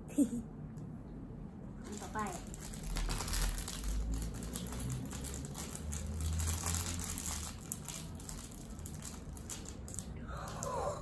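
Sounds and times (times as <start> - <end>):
low steady hum: 0.0 - 11.0
plastic bag crinkling: 1.8 - 10.6.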